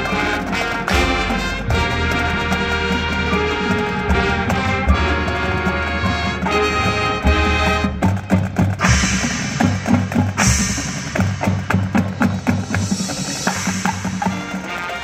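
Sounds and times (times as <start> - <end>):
brass and wind chord: 0.0 - 8.1, 13.5 - 15.0
drumline drum strokes: 0.0 - 15.0
cymbal crash: 8.8 - 14.8.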